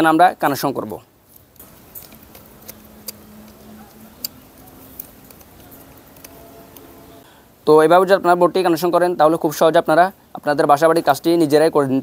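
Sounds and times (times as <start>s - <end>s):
faint steady hum: 1.0s - 8.4s
screwdriver clicking on terminal screw: 1.3s - 6.9s.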